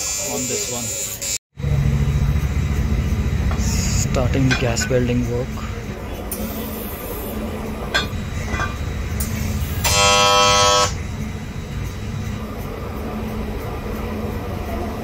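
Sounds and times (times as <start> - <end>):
horn sounding loudly: 9.8 - 11.0.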